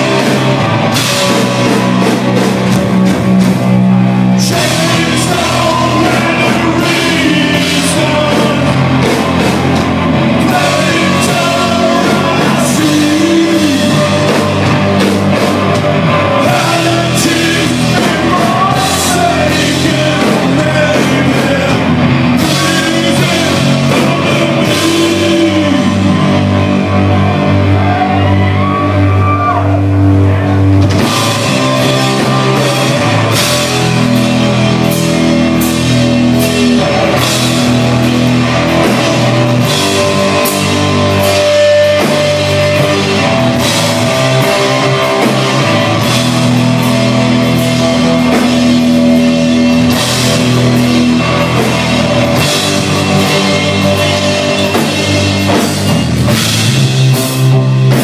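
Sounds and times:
heavy rock band playing: 0.0 - 58.0
drum kit with cymbal crashes: 30.6 - 58.0.

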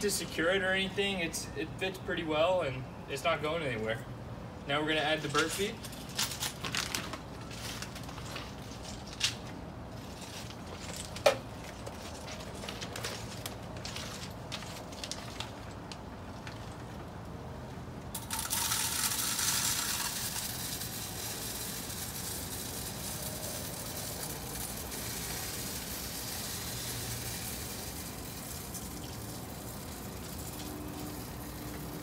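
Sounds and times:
bird seed pouring: 18.2 - 32.0.

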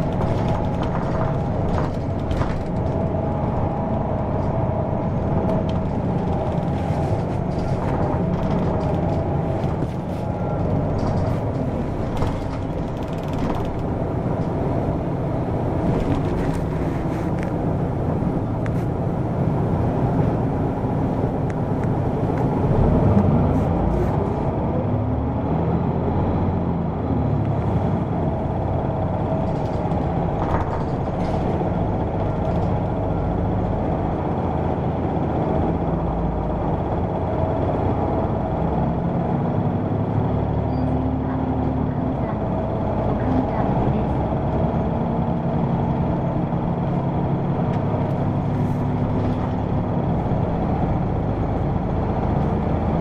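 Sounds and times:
bus diesel engine running: 0.0 - 53.0.

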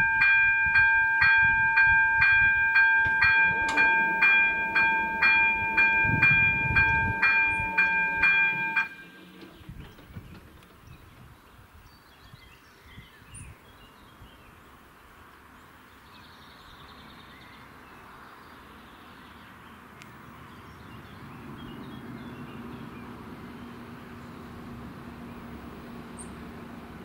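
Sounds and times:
car engine humming: 3.0 - 10.7, 20.2 - 27.0
birds chirping: 15.6 - 27.0.

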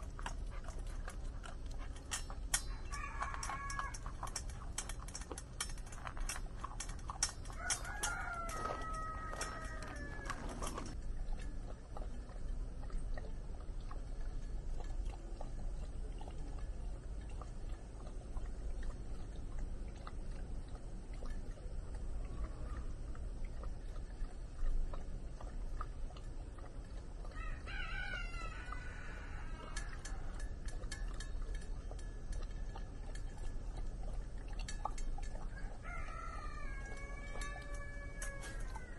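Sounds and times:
dog eating from metal bowl: 0.0 - 38.9
low background rumble: 0.0 - 38.9
rooster crowing: 2.7 - 4.0, 7.5 - 11.0, 27.4 - 30.0, 35.8 - 38.9.

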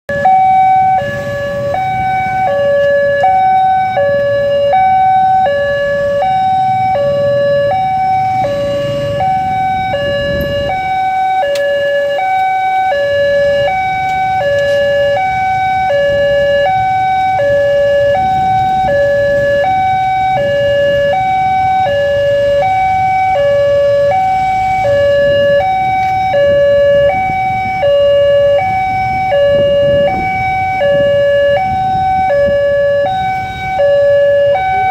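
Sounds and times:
level crossing two-tone alarm: 0.1 - 34.9.

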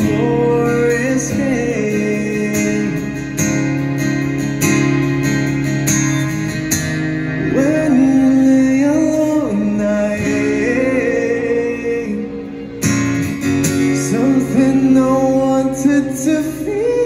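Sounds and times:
man singing: 0.0 - 3.4, 7.4 - 12.7, 14.0 - 17.0
acoustic guitar strumming: 0.0 - 17.0.

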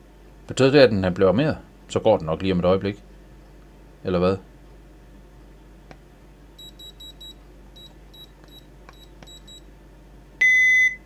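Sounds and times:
short high key beeps: 6.6 - 9.6, 10.4 - 11.0
loud long beep: 10.4 - 11.0.

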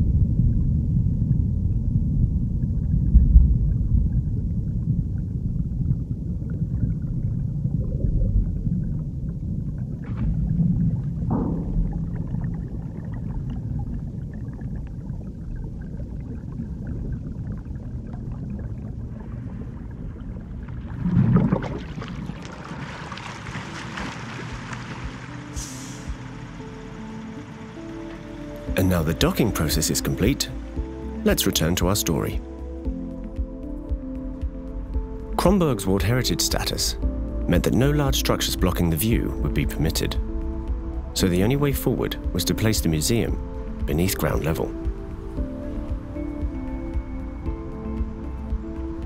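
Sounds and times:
underwater rumble and gurgling: 0.0 - 49.0
water draining with rushing hiss: 21.2 - 30.1.

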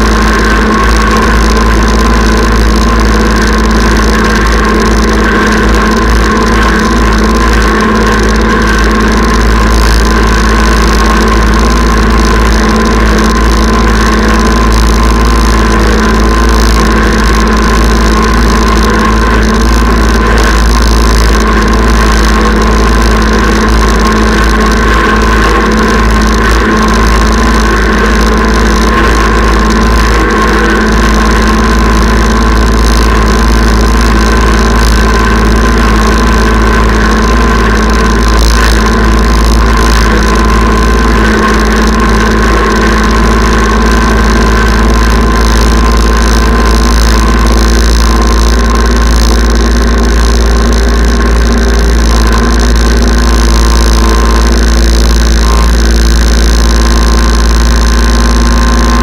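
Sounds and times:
tractor engine running: 0.0 - 59.0.

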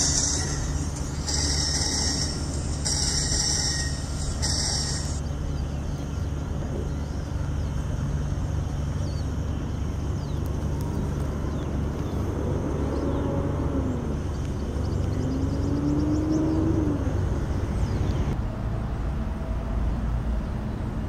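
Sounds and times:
diesel locomotives idling: 0.0 - 16.2.

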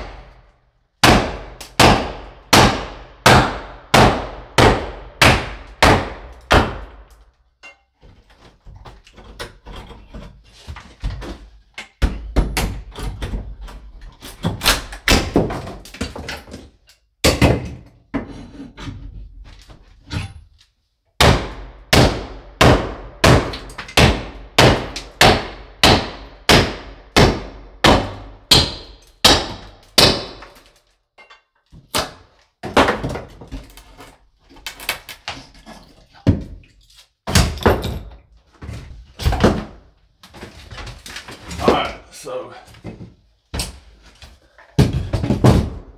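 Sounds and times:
hammer striking wood: 1.0 - 7.0, 17.2 - 17.9, 21.2 - 30.6.

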